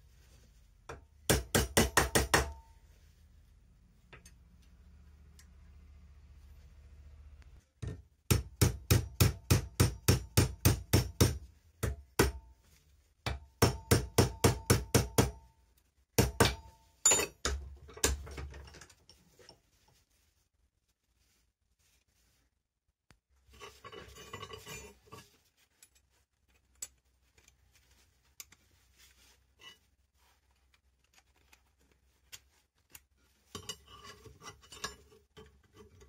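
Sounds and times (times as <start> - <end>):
hammer striking steel rod: 0.9 - 2.7, 7.8 - 12.5, 13.2 - 15.5, 16.2 - 18.2.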